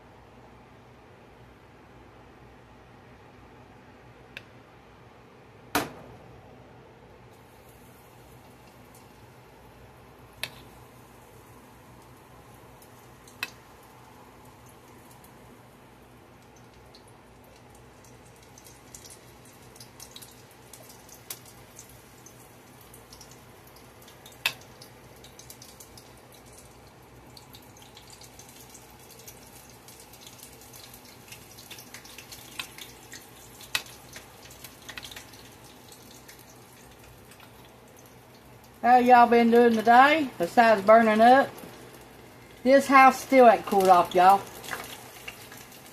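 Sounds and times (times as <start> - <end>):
oil crackling while deep-frying: 7.3 - 45.9.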